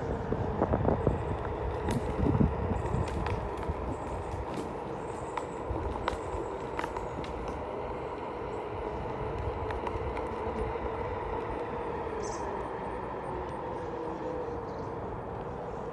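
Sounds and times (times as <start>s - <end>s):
electric motor whining: 0.0s - 15.9s
tyre rumbling on pavement: 0.0s - 15.9s.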